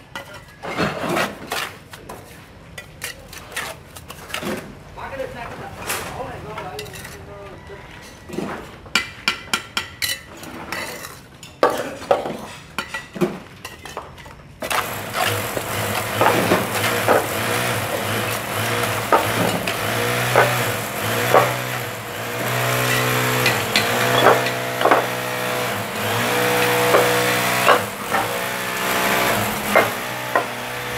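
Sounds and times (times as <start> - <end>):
trowel scraping mortar: 14.6 - 30.9.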